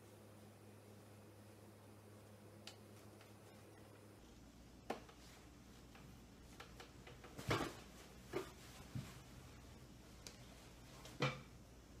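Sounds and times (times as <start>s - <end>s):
fabric rustle: 7.3s - 11.3s.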